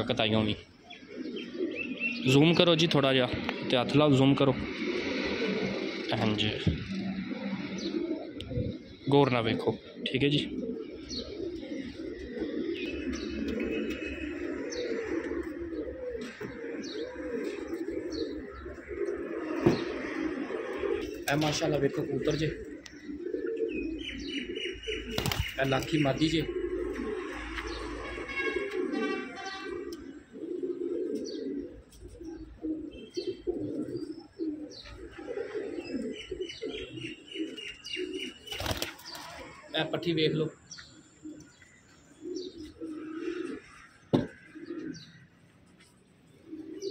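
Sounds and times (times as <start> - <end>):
pigeons cooing: 0.0 - 46.9
high bird chirps: 12.7 - 15.1, 22.8 - 26.3.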